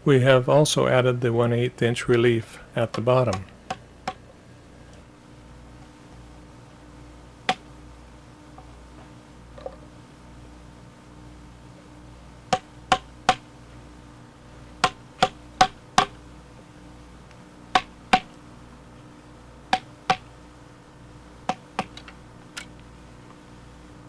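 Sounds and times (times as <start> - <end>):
faint steady hum: 0.0 - 24.0
sharp ringing knocks: 12.5 - 13.5, 14.8 - 16.2, 17.8 - 18.4, 19.7 - 20.3.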